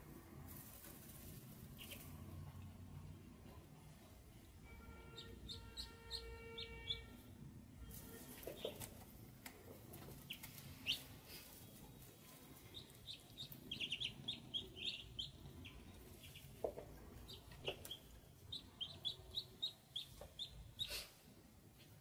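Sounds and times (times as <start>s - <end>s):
ducklings peeping: 1.7s - 2.2s, 5.1s - 7.2s, 8.2s - 9.0s, 9.8s - 21.0s.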